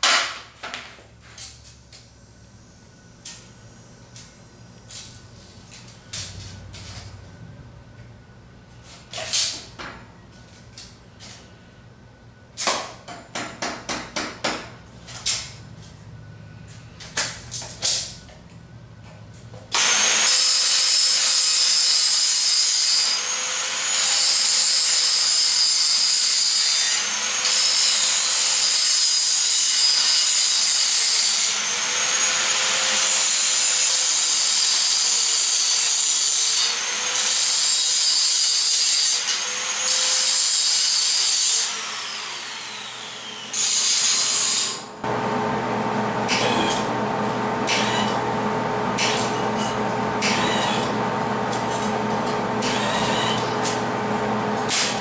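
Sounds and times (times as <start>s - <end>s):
reciprocating saw cutting steel: 19.8s - 44.9s, 47.6s - 48.2s, 48.9s - 53.9s.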